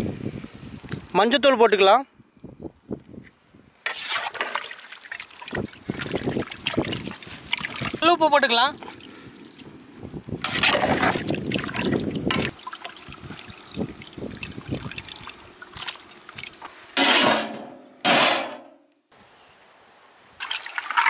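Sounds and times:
liquid sloshing: 3.9 - 8.1, 10.4 - 17.7.

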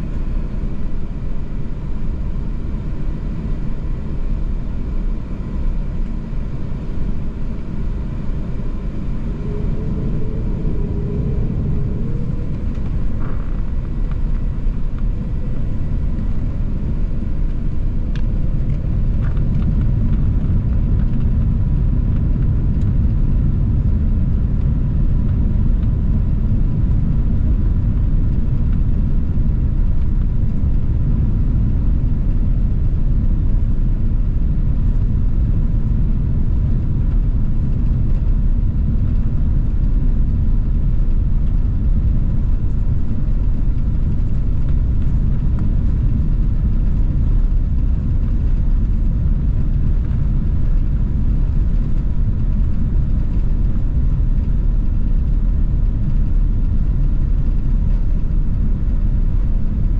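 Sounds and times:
aircraft cabin engine rumble: 0.0 - 59.9
faint steady tone: 5.7 - 16.2.

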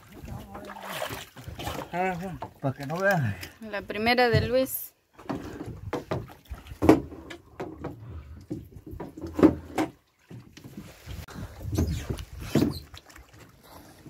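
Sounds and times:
knocks against a small boat: 4.2 - 10.6.

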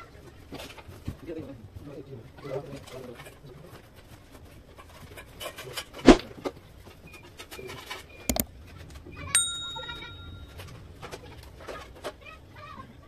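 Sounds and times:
bell ding: 9.4 - 10.7.

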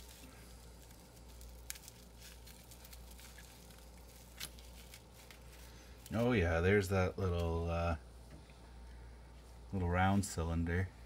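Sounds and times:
bubble wrap crinkling: 0.0 - 7.7.

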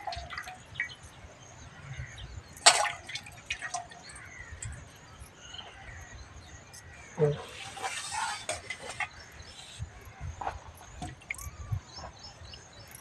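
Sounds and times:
water splashing and dripping: 0.0 - 1.0, 2.6 - 5.0, 7.2 - 9.8.

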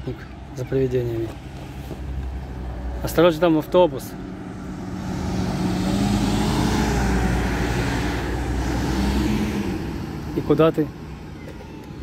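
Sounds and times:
bus driving past: 0.5 - 12.0
van driving past: 1.8 - 11.3.

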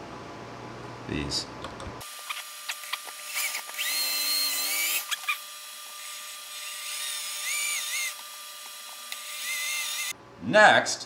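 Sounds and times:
electric drill whining: 2.0 - 10.1.

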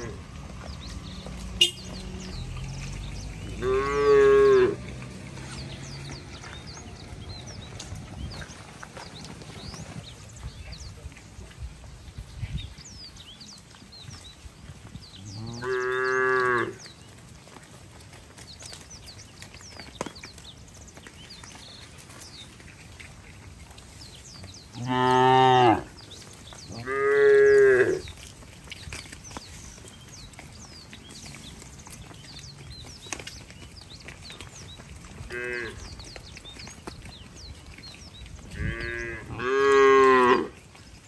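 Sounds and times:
cattle mooing: 1.7 - 5.0, 24.8 - 25.9, 26.7 - 28.0, 35.3 - 35.8, 38.6 - 40.6.

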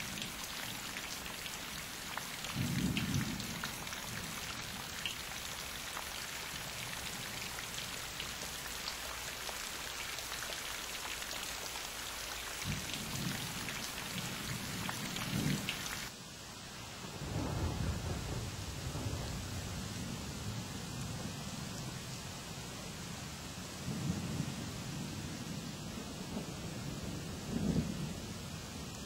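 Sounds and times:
steady rain: 0.0 - 29.0
thunder rumbling: 17.1 - 19.6.

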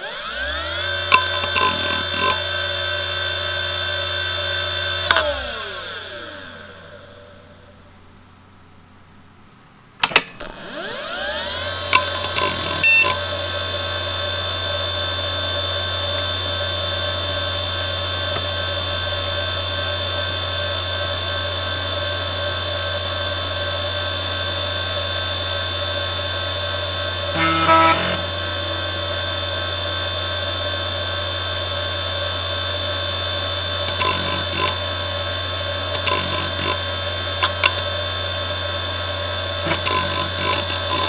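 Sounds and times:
hard drive spinning up whine: 0.0 - 8.5, 10.4 - 41.0
hard drive spindle hum: 0.0 - 41.0
hard drive seek chatter: 0.8 - 2.5, 10.8 - 13.5, 33.8 - 38.0, 39.6 - 41.0.

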